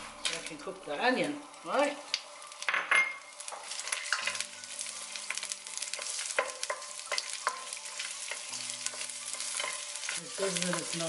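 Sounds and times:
onion sizzling in hot oil: 0:00.0 - 0:11.0
spatula scraping a pan: 0:03.5 - 0:11.0.

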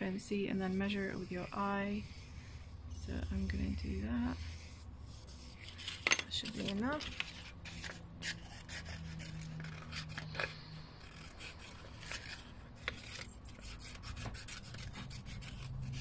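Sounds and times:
paper rustling: 0:05.4 - 0:13.4
scissors snipping paper: 0:05.7 - 0:16.0.

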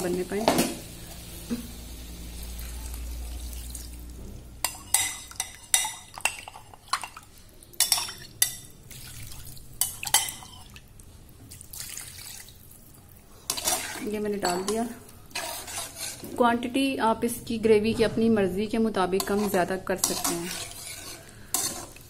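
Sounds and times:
metal spatula clinking on glass bowl: 0:14.4 - 0:15.0.

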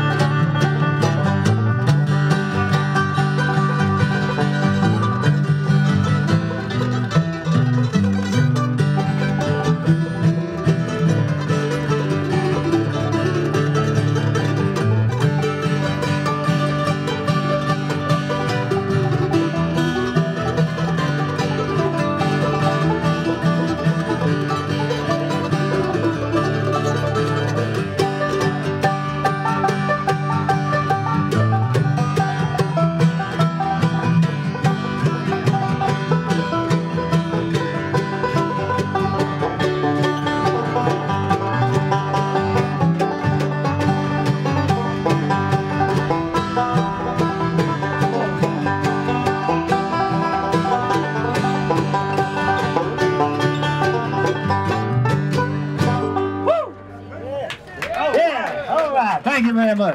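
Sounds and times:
banjo picking: 0:00.0 - 0:59.9
bluegrass string band playing: 0:00.0 - 0:59.9.

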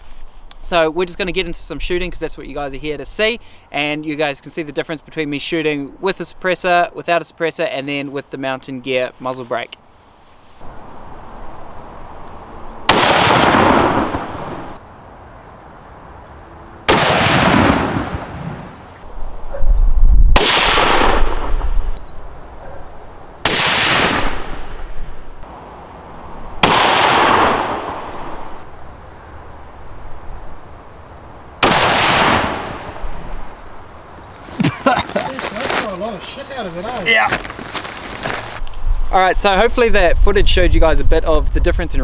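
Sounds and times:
rifle shots echoing: 0:12.9 - 0:14.8, 0:16.9 - 0:18.8, 0:20.4 - 0:21.6, 0:23.4 - 0:24.7, 0:26.6 - 0:28.4, 0:31.6 - 0:33.0.

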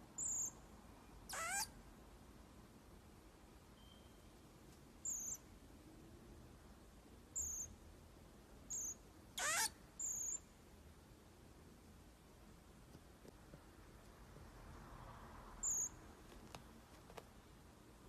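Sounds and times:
marmoset high-pitched calls: 0:00.2 - 0:00.6, 0:01.2 - 0:01.8, 0:05.0 - 0:05.5, 0:07.4 - 0:07.8, 0:08.7 - 0:10.5, 0:15.6 - 0:16.0.

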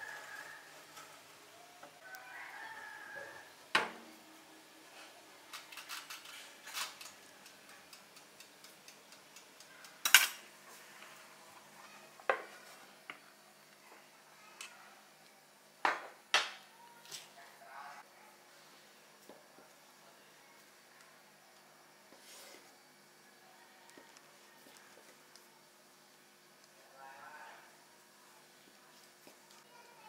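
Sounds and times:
metal tongs clanking on tray: 0:10.0 - 0:10.4.

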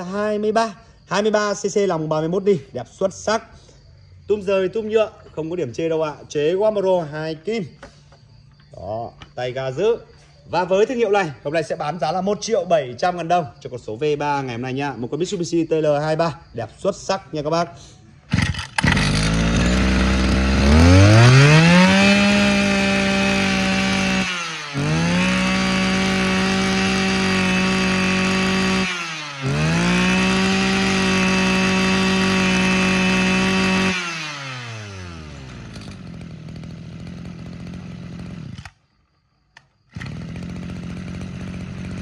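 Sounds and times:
brush cutter engine revving: 0:18.3 - 0:38.8, 0:39.6 - 0:42.0.

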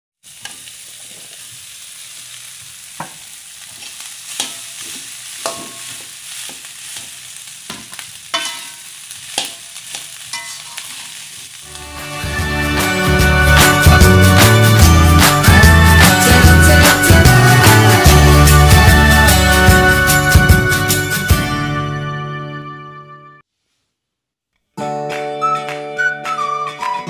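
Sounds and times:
aromatics sizzling in oil: 0:00.2 - 0:21.1
spatula knocking against wok: 0:04.4 - 0:07.1, 0:07.7 - 0:10.9
music: 0:11.7 - 0:23.4, 0:24.7 - 0:27.0.

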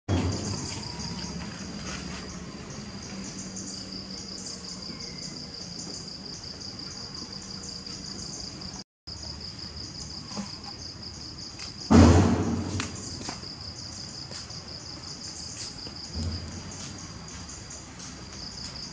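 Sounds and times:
insect chorus chirring: 0:00.1 - 0:18.9.

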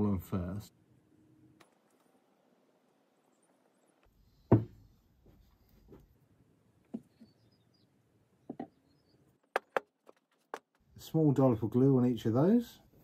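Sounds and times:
wooden parts knocking: 0:09.4 - 0:10.8.

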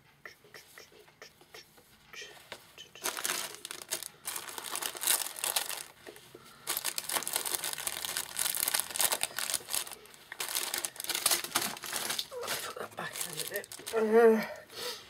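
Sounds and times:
plastic packaging crinkling: 0:03.0 - 0:14.2.

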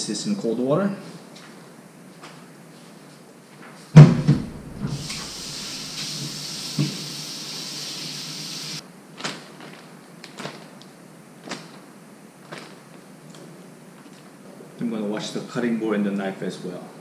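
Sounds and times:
water running from kitchen tap: 0:04.5 - 0:08.8.

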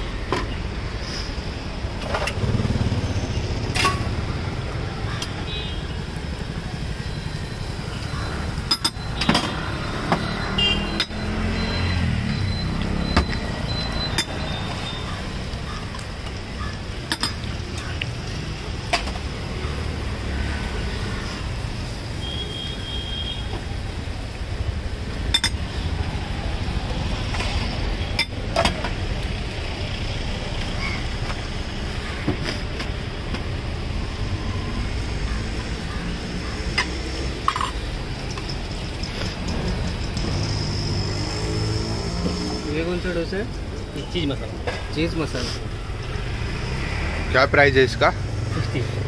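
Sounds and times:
passing traffic rumble: 0:00.0 - 0:49.0
metal utensils clinking: 0:17.1 - 0:17.5, 0:25.3 - 0:25.6, 0:36.8 - 0:38.6.

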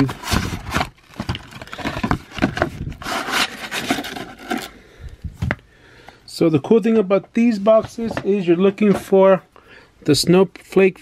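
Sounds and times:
cardboard box and packs handled: 0:00.0 - 0:04.7.

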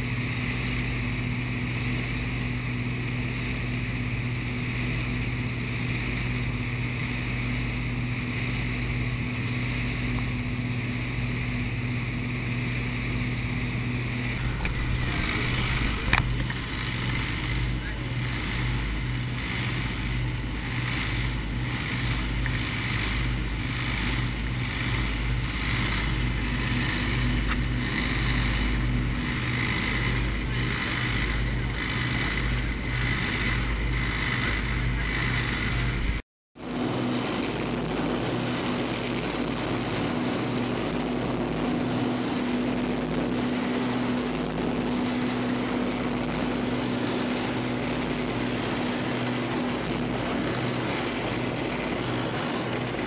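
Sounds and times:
motorboat engine running: 0:00.0 - 0:53.0
rushing water of boat wake: 0:36.0 - 0:53.0.

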